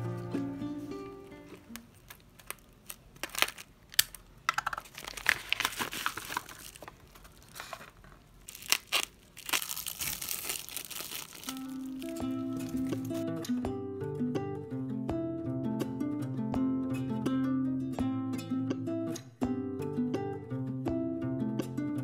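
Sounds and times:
bubble wrap crinkling: 1.3s - 13.2s
paper crinkling and tearing: 1.4s - 13.2s.

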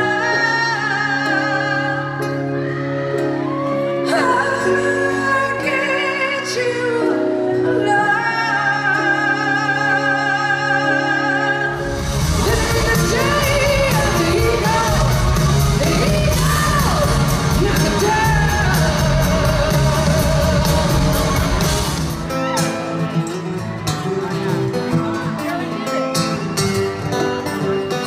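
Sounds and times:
band playing hard rock: 11.7s - 28.0s.

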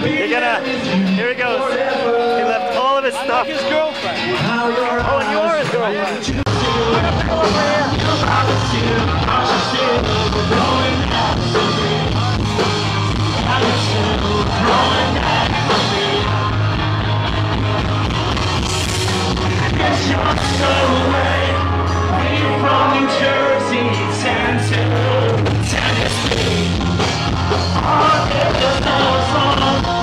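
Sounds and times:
bass: 0.0s - 30.0s
distorted electric guitars: 0.0s - 30.0s
drums: 0.0s - 30.0s
person singing: 6.2s - 12.6s, 13.3s - 16.7s, 19.2s - 26.8s, 27.7s - 30.0s.

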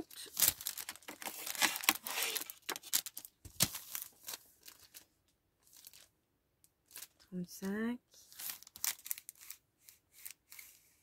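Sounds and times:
foam sheet pack crinkling: 0.0s - 6.1s, 6.9s - 7.2s, 8.3s - 9.6s.

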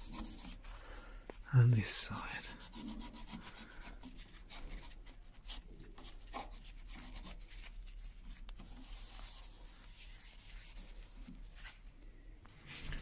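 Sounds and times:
cloth rag rubbing on wood: 0.0s - 0.6s, 2.1s - 11.8s.

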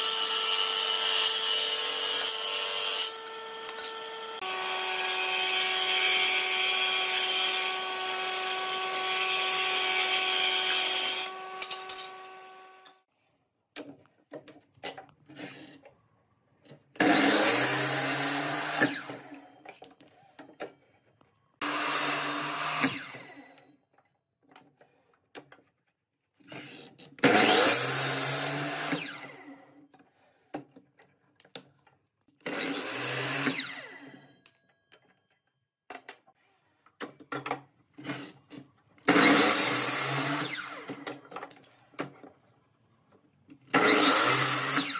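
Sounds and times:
miter saw cutting wood: 0.0s - 13.0s, 17.0s - 19.3s, 21.6s - 23.4s, 27.2s - 29.5s, 32.5s - 34.0s, 39.1s - 41.0s, 43.7s - 44.9s
table saw cutting wood: 0.0s - 13.1s, 17.0s - 19.4s, 21.6s - 23.5s, 27.2s - 29.6s, 32.4s - 34.2s, 39.1s - 41.1s, 43.7s - 44.9s.

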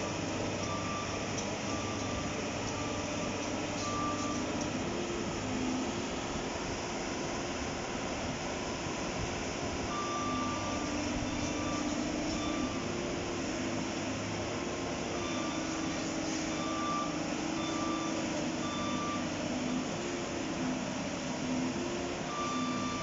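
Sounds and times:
high alarm beeps: 0.0s - 4.8s, 9.9s - 13.0s, 15.1s - 19.9s, 22.3s - 23.0s
excavator diesel engine running: 0.0s - 23.0s.

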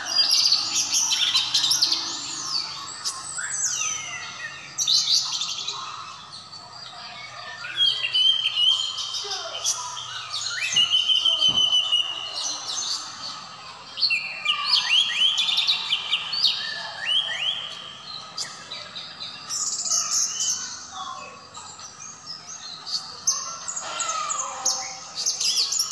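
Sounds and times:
thrush singing whistled phrases: 0.0s - 6.2s, 7.6s - 21.0s
fast high twittering: 0.0s - 25.9s.

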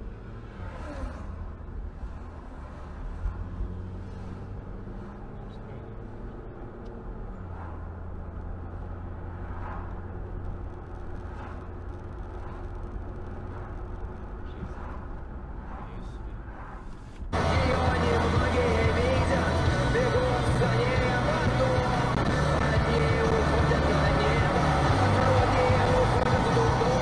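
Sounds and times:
car road and engine rumble: 0.0s - 27.0s.

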